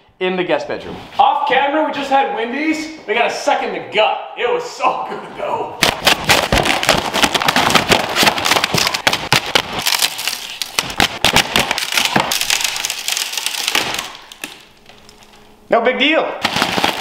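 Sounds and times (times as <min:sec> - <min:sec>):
cardboard ripping and snapping: 0:05.8 - 0:15.4, 0:16.4 - 0:17.0.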